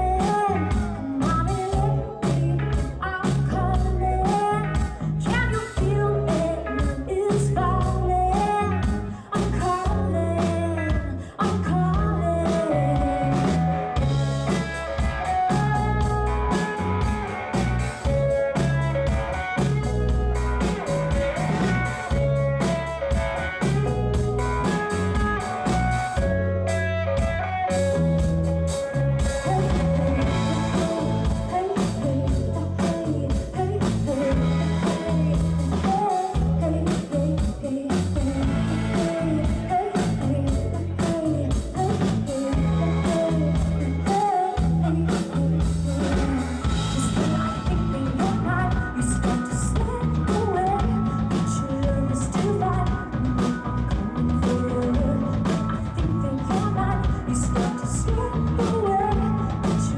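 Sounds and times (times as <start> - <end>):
woman singing: 0.0 - 17.1, 29.2 - 59.9
live band playing: 0.0 - 59.9.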